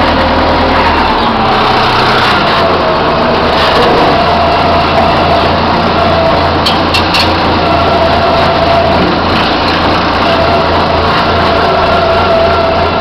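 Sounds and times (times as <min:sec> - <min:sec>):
diesel engine running: 0:00.0 - 0:13.0
hydraulic whine: 0:00.0 - 0:13.0
short squeaks: 0:06.6 - 0:07.5.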